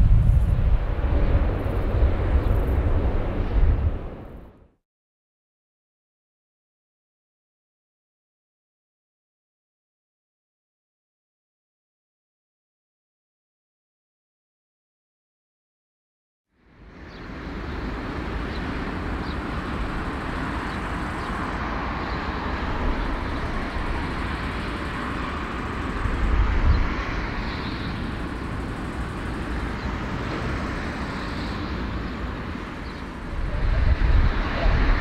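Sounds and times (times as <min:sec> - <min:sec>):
jet engines taxiing: 0:00.0 - 0:04.4, 0:16.8 - 0:35.0.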